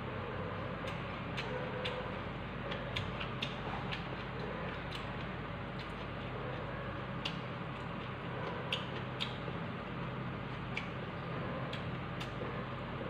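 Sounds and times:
steady low hum: 0.0 - 13.0
person chewing: 0.9 - 11.0.

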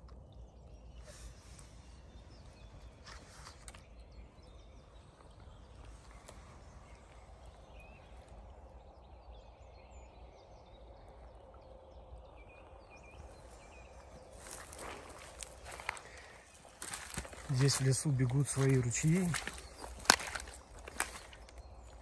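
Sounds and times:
distant bird chirps: 0.0 - 22.0
stream running: 12.7 - 22.0.

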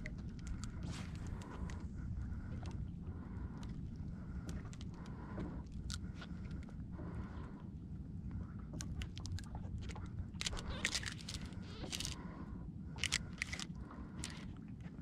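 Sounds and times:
wind rumble on microphone: 0.0 - 15.0
crackling and rustling clicks: 8.8 - 12.2, 13.0 - 15.0.

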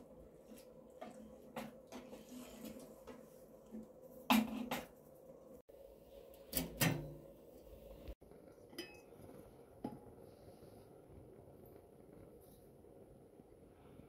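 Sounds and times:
metal cookware clanking: 8.7 - 9.1.

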